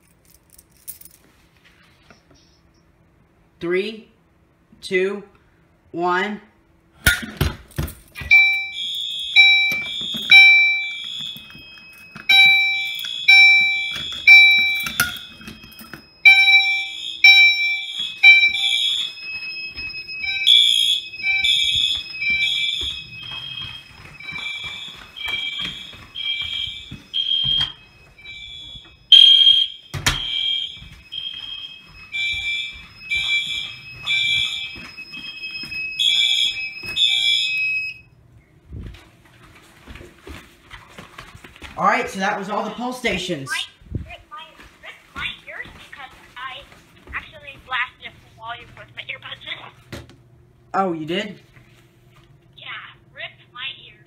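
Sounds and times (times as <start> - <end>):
fire alarm horns beeping: 8.2 - 38.2
steady high tone: 8.3 - 38.1.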